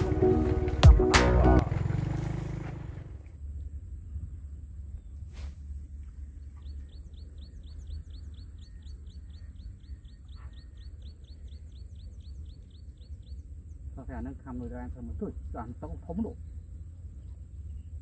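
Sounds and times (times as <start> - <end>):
low wind rumble: 0.0 - 18.0
bird chirping: 6.0 - 14.9, 15.5 - 18.0.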